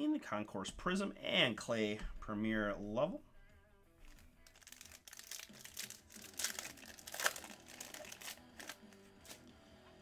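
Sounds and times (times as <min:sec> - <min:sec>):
foil wrapper crinkling: 0:04.0 - 0:09.4.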